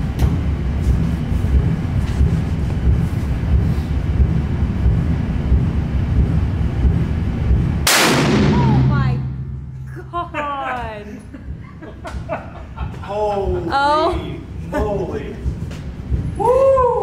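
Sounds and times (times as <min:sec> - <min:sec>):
low rumble: 0:00.0 - 0:17.0
rifle shot echoing indoors: 0:07.9 - 0:09.9.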